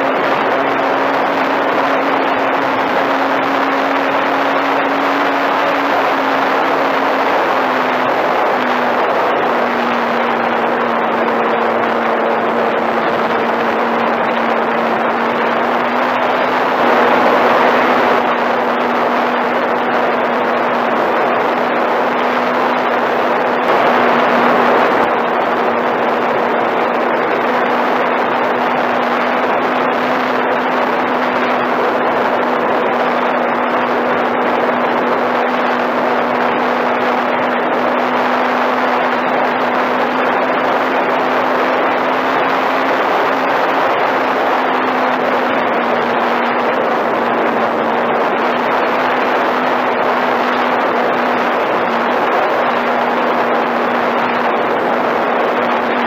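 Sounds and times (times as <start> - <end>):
model plane motor humming: 0.0 - 56.0
wind rushing over microphone: 0.0 - 56.0.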